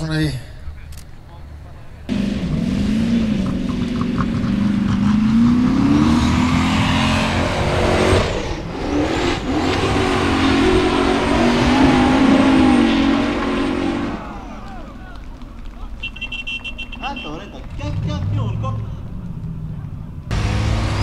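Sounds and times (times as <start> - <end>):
buggy engine revving hard: 2.1 - 14.9, 20.3 - 21.0.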